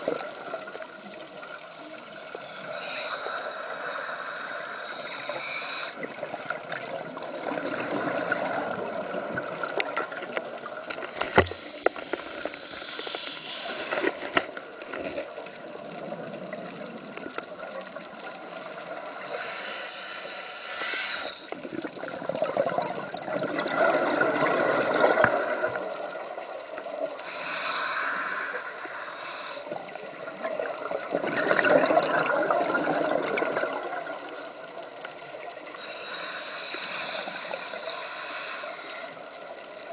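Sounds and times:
diver breathing through regulator: 2.2s - 6.1s, 9.8s - 16.2s, 18.1s - 21.6s, 27.2s - 29.8s, 35.8s - 39.3s.

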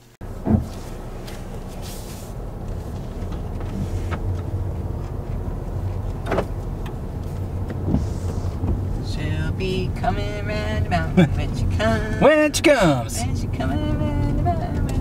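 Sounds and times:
car road and engine rumble: 0.0s - 15.0s
light knocks in car cabin: 0.4s - 0.8s, 7.6s - 8.9s.

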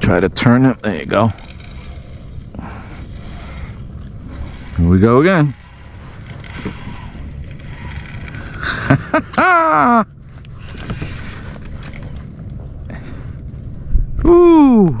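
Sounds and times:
faint tackle clicks: 0.0s - 9.4s, 10.4s - 13.9s
wind and water rumble: 0.0s - 15.0s
man exclaiming: 14.2s - 15.0s.

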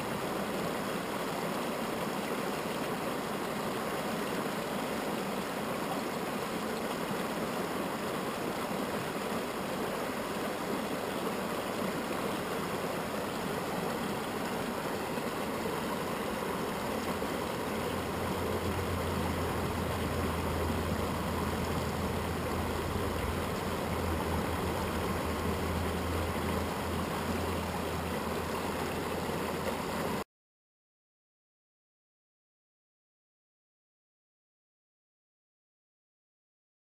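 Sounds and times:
water rushing over rocks: 0.0s - 30.2s
low hum: 16.1s - 30.2s.

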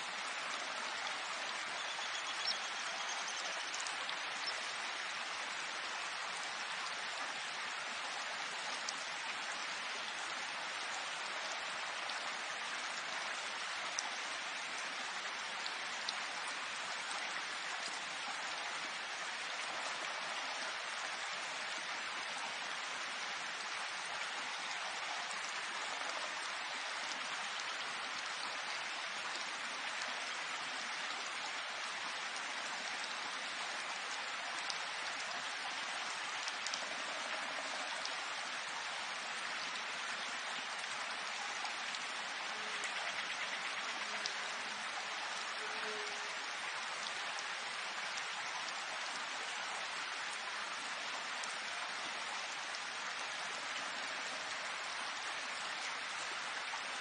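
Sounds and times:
steady rain hiss: 0.0s - 57.0s
rain ticks: 32.3s - 38.2s, 40.7s - 48.9s.

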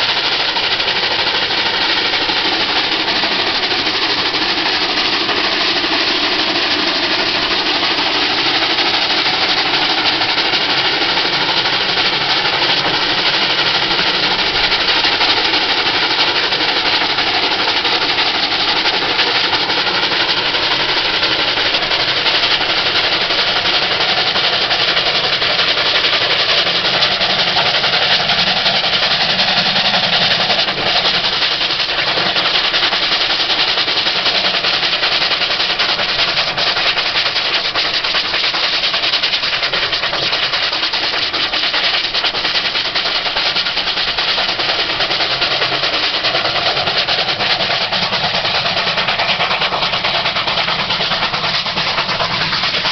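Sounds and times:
continuous rushing noise: 0.0s - 52.9s
steam locomotive exhaust beating: 0.0s - 52.9s.

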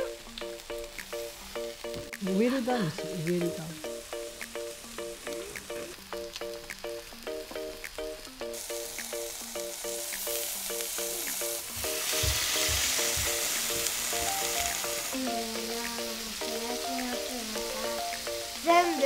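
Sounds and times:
food sizzling on grill plate: 0.0s - 19.0s
light plucked background music: 0.0s - 19.0s
liquid steaming on hot plate: 8.5s - 19.0s.

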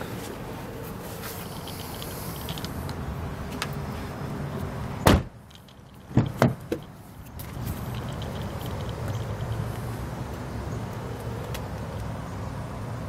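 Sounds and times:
car door slamming: 5.0s - 5.4s, 6.1s - 6.8s.

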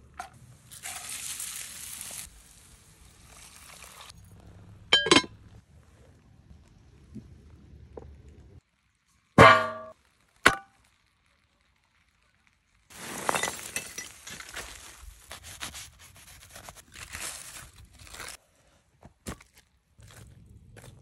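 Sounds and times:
metallic clang: 5.0s - 5.3s, 9.4s - 9.9s
aluminium foil crinkling: 10.8s - 18.4s.

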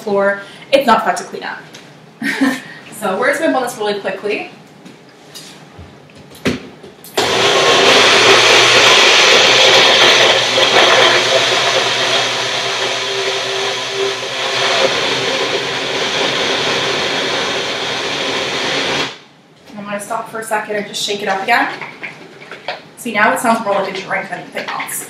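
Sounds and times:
blender motor blending: 7.2s - 19.2s.

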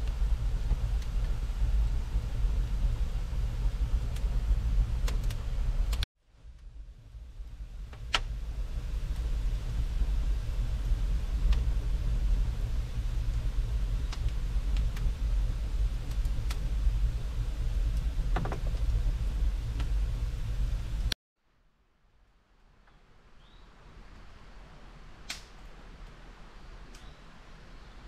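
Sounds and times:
logs crackling and popping: 0.0s - 21.2s, 25.2s - 26.2s
low rumble of flames: 0.0s - 21.2s, 22.3s - 28.0s.

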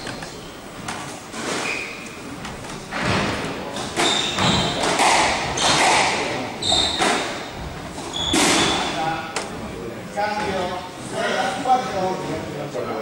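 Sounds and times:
shoes squeaking on wooden floor: 0.0s - 6.0s, 6.6s - 9.8s
squash ball hits: 2.9s - 8.9s.

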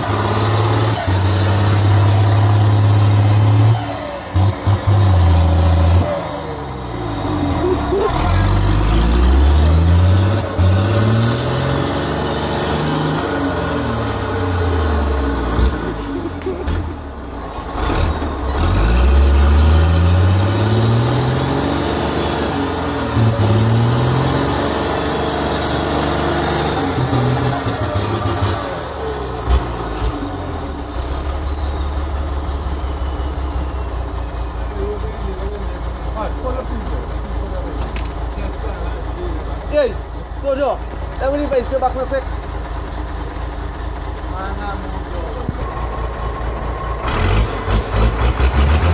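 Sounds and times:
truck engine revving: 0.0s - 48.9s.

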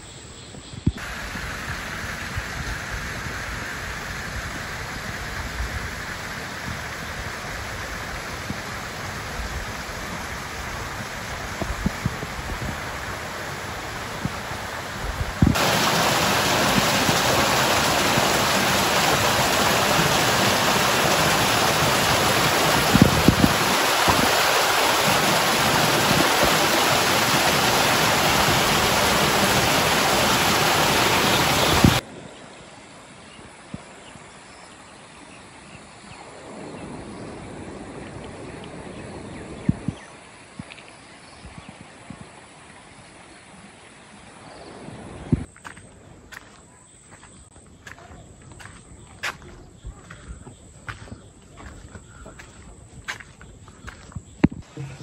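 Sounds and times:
stream splashing over rocks: 1.0s - 32.3s.

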